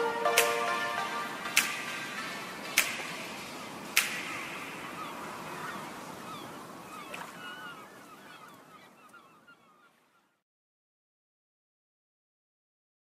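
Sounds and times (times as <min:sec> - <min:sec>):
steady hiss: 0:00.0 - 0:06.9.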